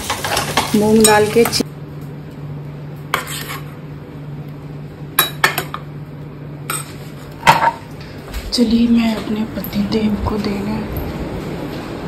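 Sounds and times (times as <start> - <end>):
steady low hum: 0.1 - 12.0
metal utensil scraping a pan: 3.2 - 3.7.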